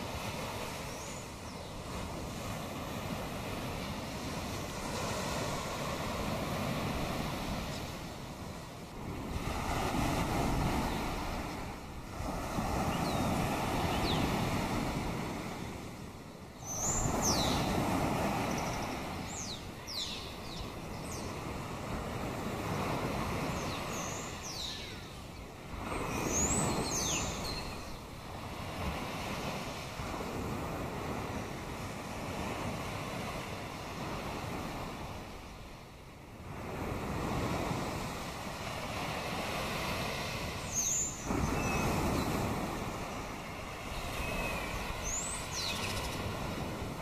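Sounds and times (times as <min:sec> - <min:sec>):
waves washing against rocky shore: 0:00.0 - 0:47.0
birds calling: 0:12.6 - 0:14.6, 0:16.6 - 0:21.7, 0:23.3 - 0:28.2, 0:40.6 - 0:46.9.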